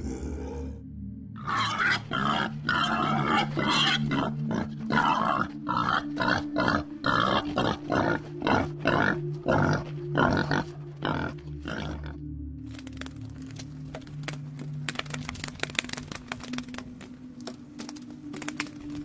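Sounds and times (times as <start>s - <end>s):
wild boar grunting: 0.0s - 0.8s, 1.4s - 12.2s.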